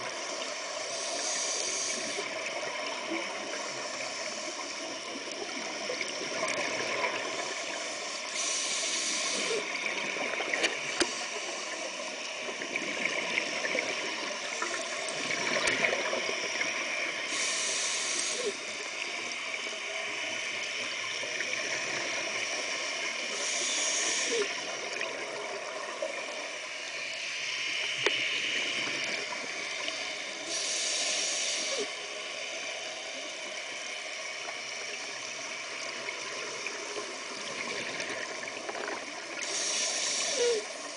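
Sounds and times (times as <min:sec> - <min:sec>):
steady watery rush: 0:00.0 - 0:40.9
regulator hissing inhalations: 0:00.4 - 0:02.6, 0:07.6 - 0:09.8, 0:17.2 - 0:18.8, 0:23.0 - 0:24.8, 0:29.8 - 0:33.2, 0:39.4 - 0:40.9
gurgling exhaled bubbles: 0:12.5 - 0:17.1.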